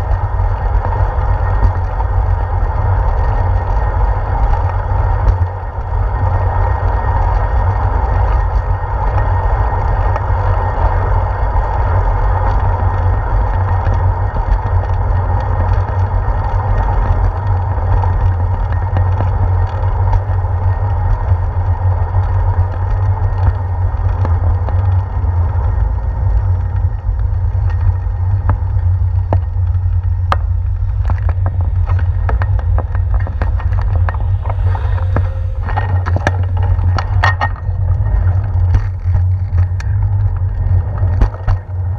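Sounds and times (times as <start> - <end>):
wind rumble: 0.0 - 41.9
sharp clicks and knocks: 26.4 - 41.9.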